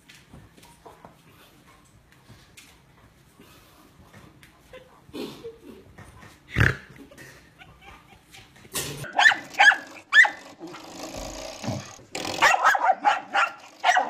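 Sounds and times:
dog yipping: 0:09.1 - 0:10.4, 0:12.4 - 0:14.0.

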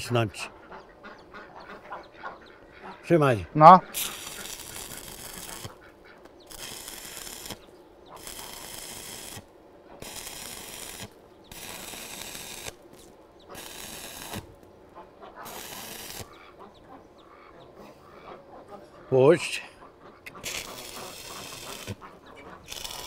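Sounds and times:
arc welding crackle: 0:03.9 - 0:14.6, 0:15.4 - 0:16.4, 0:20.3 - 0:23.0.

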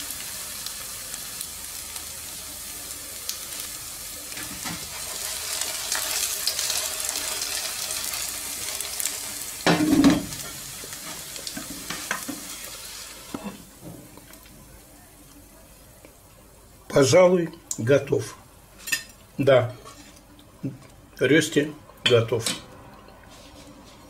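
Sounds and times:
potato cake sizzling in oil: 0:00.0 - 0:16.1
spatula scraping a pan: 0:19.8 - 0:20.2.

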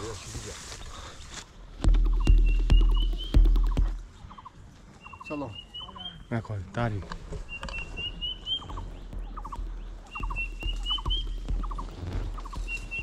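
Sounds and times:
bird calling high rising notes: 0:02.0 - 0:06.3, 0:07.4 - 0:13.0.

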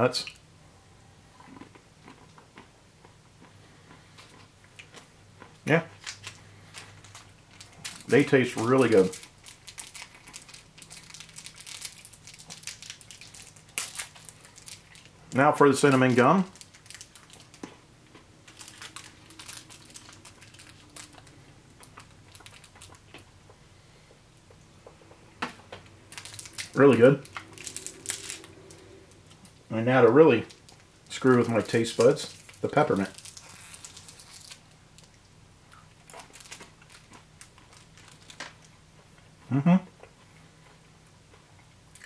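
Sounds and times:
low steady hum: 0:00.0 - 0:42.0
person chewing gum: 0:01.3 - 0:05.6, 0:26.1 - 0:29.6
soft crunching of candy: 0:01.3 - 0:25.2, 0:25.8 - 0:42.0
wrapper crinkling: 0:05.9 - 0:17.7, 0:18.4 - 0:23.0, 0:26.1 - 0:29.6, 0:30.4 - 0:35.2, 0:36.0 - 0:38.7.

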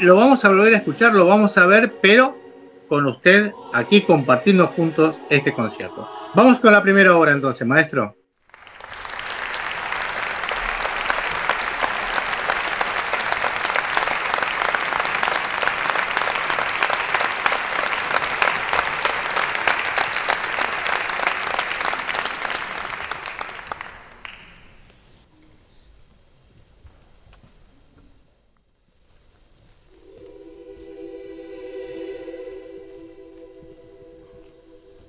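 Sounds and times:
audience applauding: 0:08.4 - 0:24.9.

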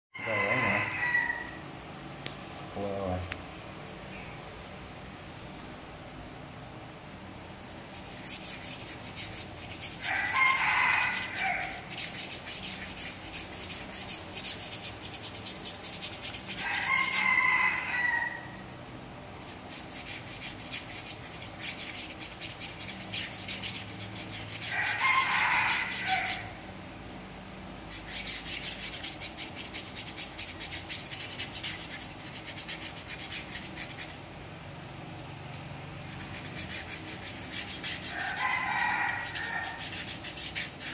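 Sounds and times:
rooster crowing: 0:00.1 - 0:01.7, 0:10.0 - 0:11.9, 0:16.6 - 0:18.7, 0:24.6 - 0:26.6, 0:38.0 - 0:40.0
paintbrush scrubbing cardboard: 0:07.6 - 0:17.6, 0:19.3 - 0:26.5, 0:27.9 - 0:34.2, 0:36.0 - 0:40.9.

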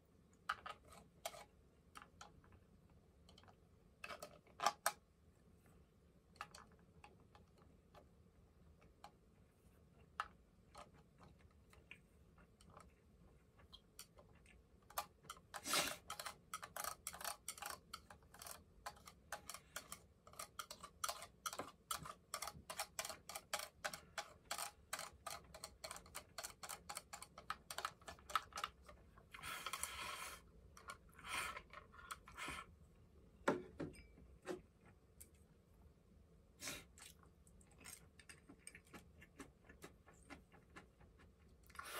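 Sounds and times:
chopsticks clicking on plastic: 0:13.6 - 0:29.0.

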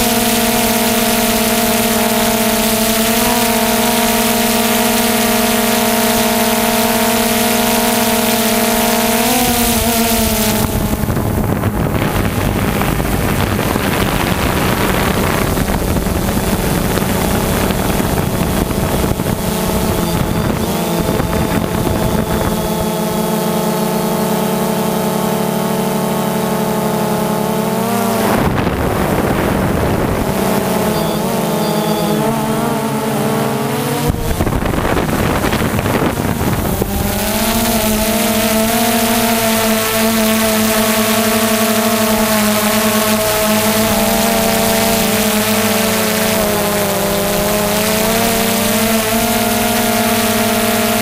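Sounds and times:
wind noise: 0:00.0 - 0:23.4, 0:27.8 - 0:51.0
drone propellers whining: 0:00.0 - 0:51.0.

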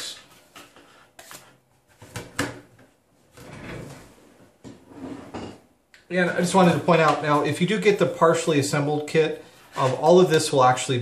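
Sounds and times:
board scraping across table: 0:03.4 - 0:05.6.

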